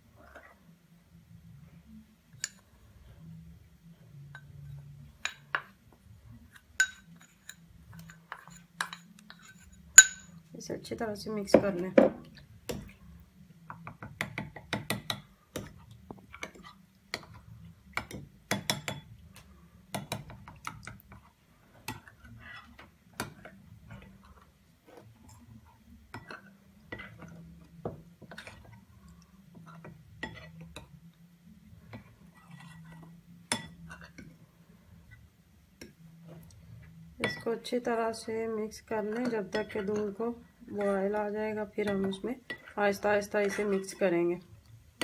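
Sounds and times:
metal spoon clinking against glass bowl: 0:06.8 - 0:10.4.

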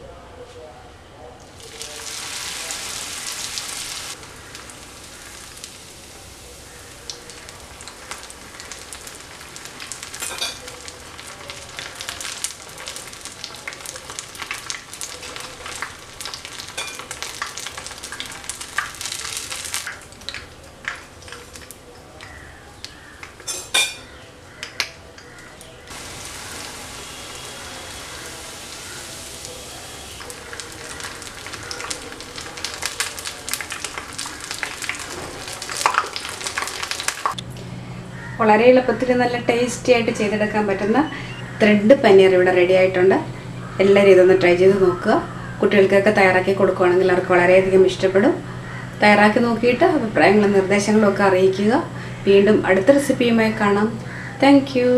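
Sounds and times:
deep-frying sizzle: 0:01.6 - 0:24.8, 0:25.4 - 0:37.4.

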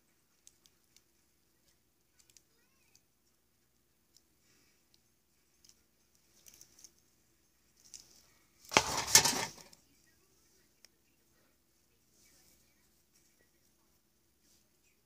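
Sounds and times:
aluminium foil crinkling: 0:05.6 - 0:07.0, 0:07.8 - 0:09.8.

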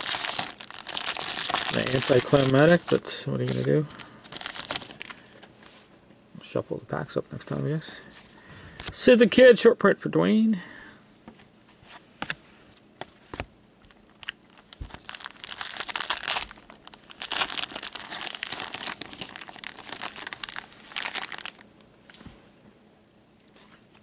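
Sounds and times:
card pack wrapper tearing: 0:00.0 - 0:05.2, 0:14.2 - 0:21.6.

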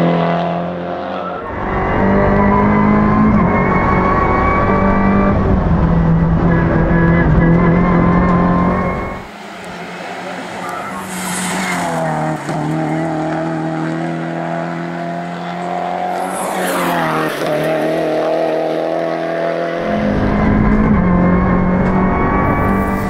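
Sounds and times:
race car engine at high revs: 0:00.0 - 0:23.0.

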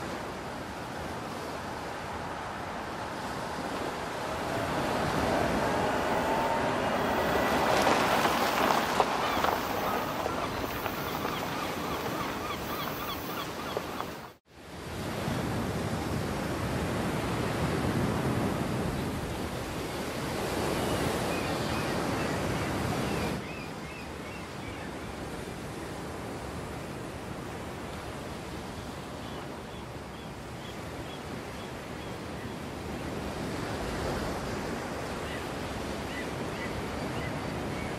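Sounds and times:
surf washing onto beach: 0:00.0 - 0:19.6
wind: 0:00.0 - 0:37.9.

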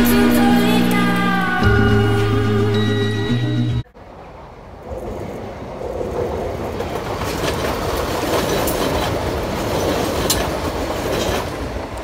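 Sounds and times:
train passing at speed: 0:00.0 - 0:12.0
wheel clicks on rails: 0:06.7 - 0:12.0.

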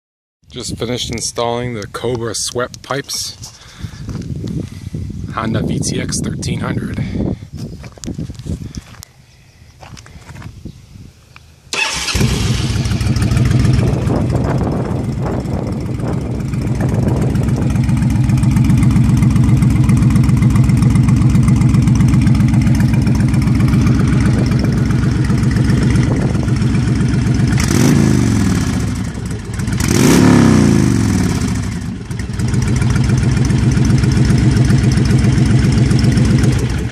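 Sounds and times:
motorcycle throttle blips: 0:11.7 - 0:36.9
motorcycle engine idling: 0:11.8 - 0:36.9.

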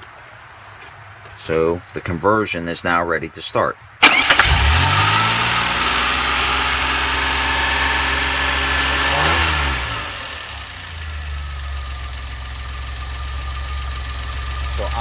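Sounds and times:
car engine idling: 0:04.0 - 0:15.0.

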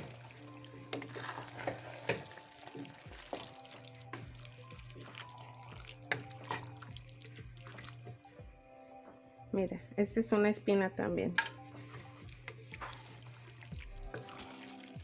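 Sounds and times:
spatula stirring stew: 0:00.0 - 0:08.3, 0:11.7 - 0:15.0
spatula scraping a pot: 0:00.8 - 0:02.5.

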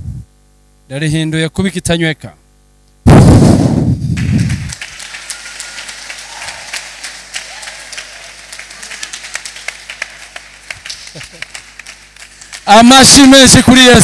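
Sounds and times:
crowd clapping: 0:04.2 - 0:14.0.

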